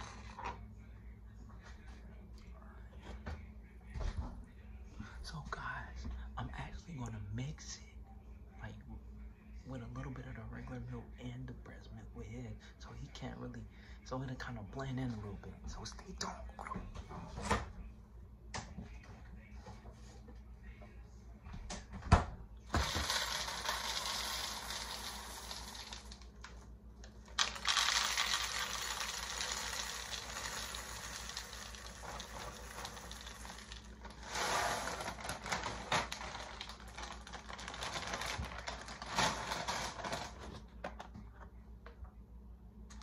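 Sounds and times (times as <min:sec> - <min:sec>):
crinkly plastic bag: 0:22.8 - 0:26.5, 0:27.2 - 0:40.6
cereal pattering into plastic bowls: 0:22.8 - 0:26.6, 0:27.3 - 0:40.6.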